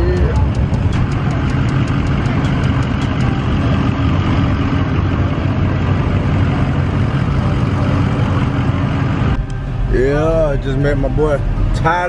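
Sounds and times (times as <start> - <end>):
light rapid ticking: 0.0 - 3.8
truck engines idling: 0.0 - 12.0.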